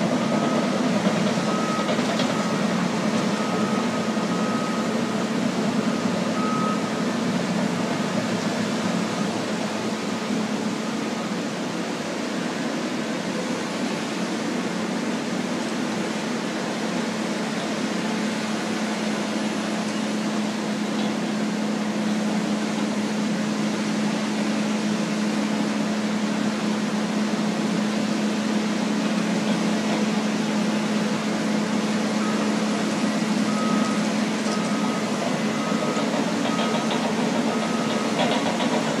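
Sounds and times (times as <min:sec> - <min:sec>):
wheel loader engine hum: 0:00.0 - 0:39.0
backup alarm beeps: 0:00.2 - 0:07.1, 0:32.2 - 0:32.7, 0:33.4 - 0:38.7.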